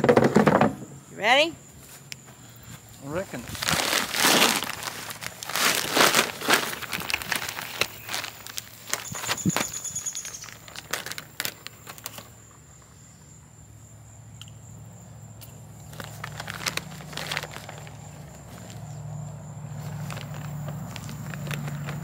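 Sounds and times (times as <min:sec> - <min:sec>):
insect trill: 0:00.3 - 0:22.0
plastic bag crinkling: 0:03.4 - 0:12.4, 0:15.8 - 0:18.8, 0:19.7 - 0:22.0.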